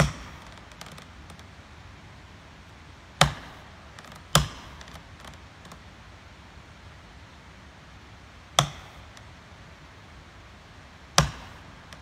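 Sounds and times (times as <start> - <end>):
axe blows on tree: 0.0 - 0.6, 3.2 - 4.9, 8.6 - 9.2, 11.1 - 12.0.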